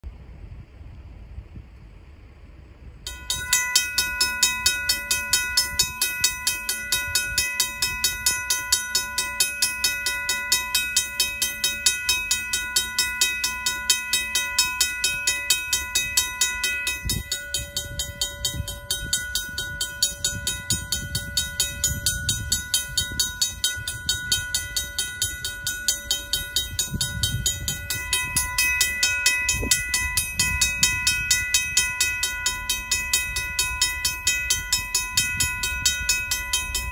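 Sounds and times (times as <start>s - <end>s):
freight train rumble: 0.0s - 36.9s
railroad crossing bell ringing: 3.1s - 36.9s.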